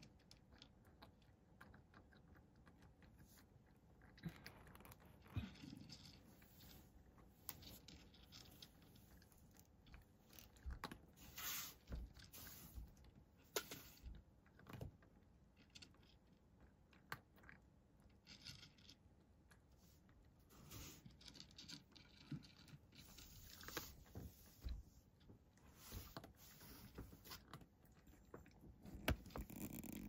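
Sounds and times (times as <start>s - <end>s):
cat crunching dry kibble: 0.0s - 6.8s, 27.4s - 30.0s.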